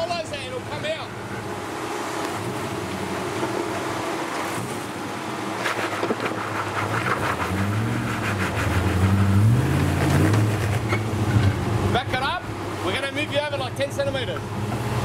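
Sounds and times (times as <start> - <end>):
truck engine revving under load: 1.1 - 15.0.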